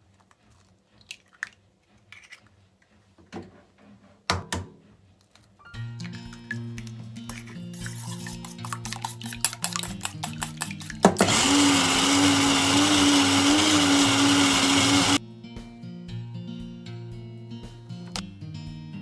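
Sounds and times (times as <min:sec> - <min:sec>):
clinking against steel bowl: 0:08.5 - 0:11.0
blender motor running: 0:11.2 - 0:15.2.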